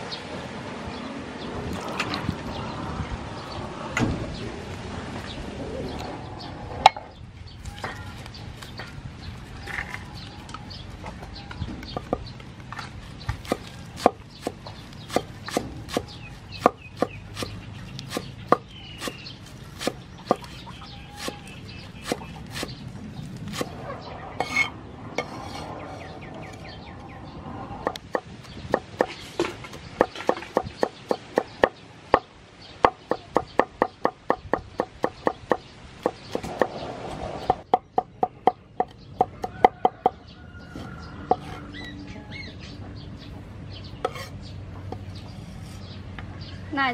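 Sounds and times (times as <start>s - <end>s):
cleaver chopping on wooden board: 13.3s - 22.8s, 23.5s - 23.8s, 27.8s - 36.8s.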